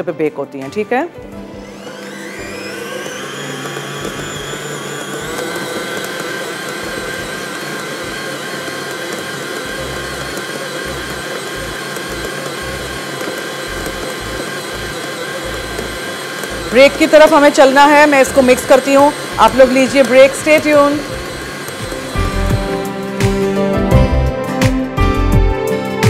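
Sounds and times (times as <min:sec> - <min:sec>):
stand mixer motor whine: 0:01.2 - 0:24.3.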